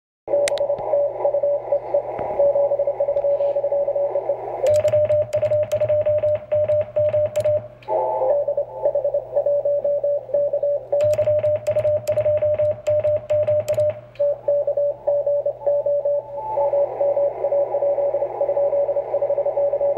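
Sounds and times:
sharp rhythmic clicks: 4.6 - 7.9, 11.0 - 14.4
single keyed tone: 4.7 - 7.8, 11.0 - 14.8
morse code tones: 4.7 - 16.7.

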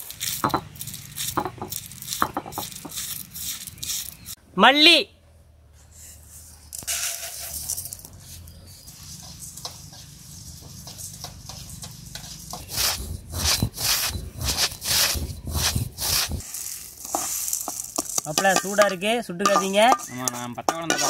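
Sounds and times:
seeds poured into pan: 0.0 - 4.3, 6.7 - 8.1, 12.3 - 21.0
seeds scraping and rattling: 0.0 - 4.4, 6.0 - 21.0.

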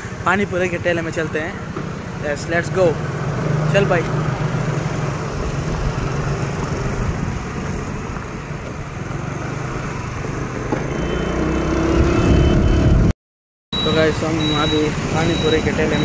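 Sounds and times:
wind rumbling on microphone: 5.1 - 10.7.

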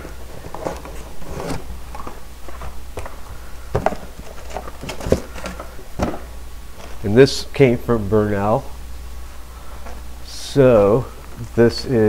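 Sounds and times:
packaging rustling: 0.0 - 7.0
steady low hum: 0.0 - 12.0
boxes knocking on rubber mat: 2.5 - 6.3.

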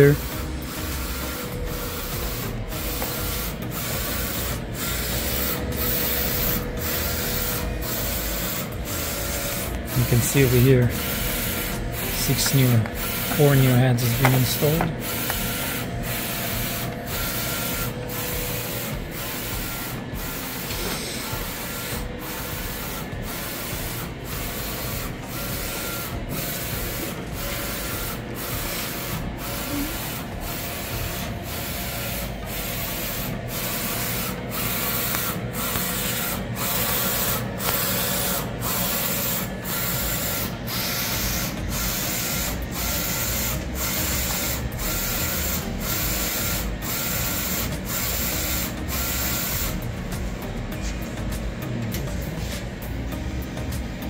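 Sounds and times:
inkjet printer carriage whirring: 0.0 - 54.0.

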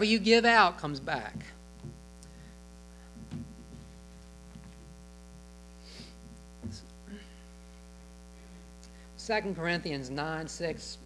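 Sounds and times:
electrical mains hum: 0.0 - 11.0
soft knocks: 3.2 - 3.9.

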